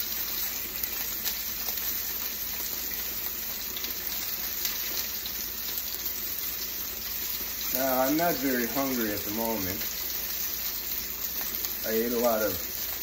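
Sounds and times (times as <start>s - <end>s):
steaks sizzling in frying pan: 0.0s - 13.0s
kitchen tap running: 2.7s - 13.0s.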